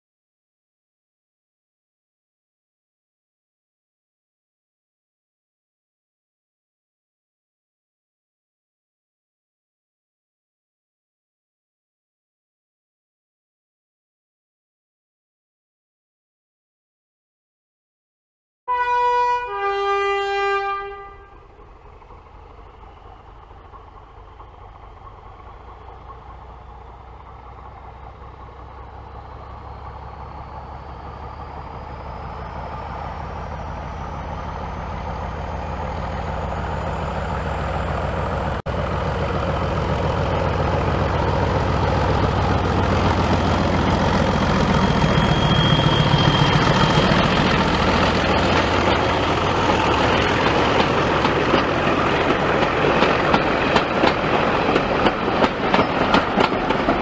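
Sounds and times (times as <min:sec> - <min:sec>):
locomotive horn: 0:18.7 - 0:21.4
locomotive engine running with whine: 0:19.2 - 0:57.0.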